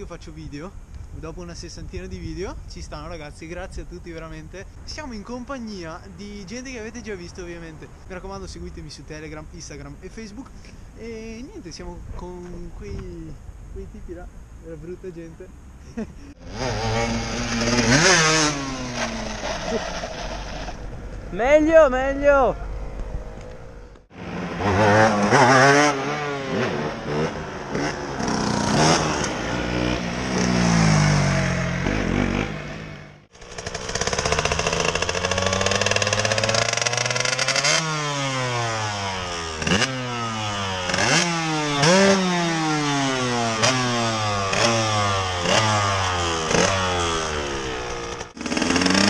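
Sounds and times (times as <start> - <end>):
motorcycle engines revving: 15.6 - 21.4, 22.5 - 49.0.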